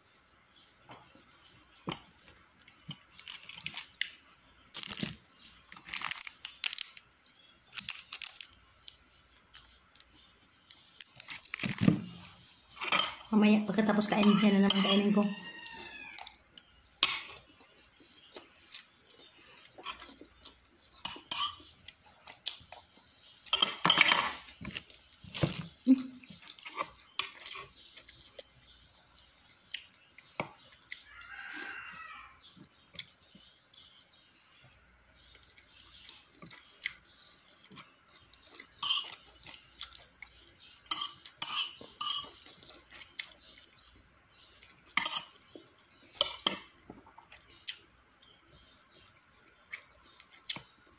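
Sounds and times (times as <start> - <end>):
cutlery clinking on plates: 12.8 - 13.3, 21.0 - 21.7, 23.5 - 24.5, 40.9 - 42.4, 44.9 - 45.4.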